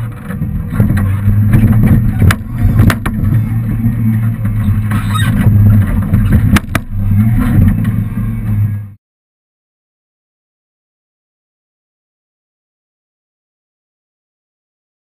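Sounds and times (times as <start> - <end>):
small engine humming: 0.0 - 9.0
sharp knocks and rattles: 4.3 - 8.0.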